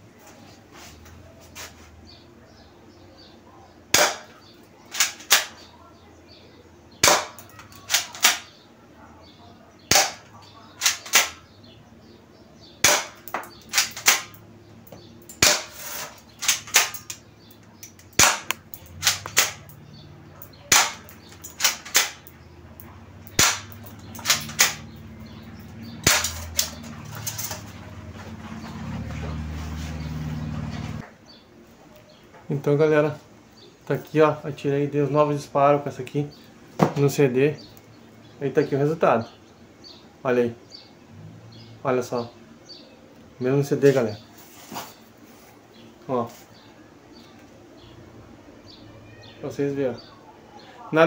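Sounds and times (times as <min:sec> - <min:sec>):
airsoft pistol shots: 0:03.9 - 0:04.3, 0:04.9 - 0:05.6, 0:07.0 - 0:08.5, 0:09.9 - 0:11.5, 0:12.8 - 0:14.4, 0:15.4 - 0:15.8, 0:16.4 - 0:17.1, 0:18.1 - 0:19.7, 0:20.7 - 0:22.3, 0:23.2 - 0:25.0, 0:26.0 - 0:26.8
pellets striking a disc: 0:03.9 - 0:05.6, 0:07.0 - 0:08.5, 0:09.9 - 0:11.4, 0:12.8 - 0:17.2, 0:17.8 - 0:19.8, 0:20.4 - 0:22.4, 0:23.2 - 0:27.8
pistol mechanism clicks: 0:04.9 - 0:05.6, 0:07.0 - 0:08.5, 0:09.9 - 0:11.4, 0:12.8 - 0:14.4, 0:16.3 - 0:19.8, 0:20.4 - 0:24.9, 0:26.0 - 0:27.5.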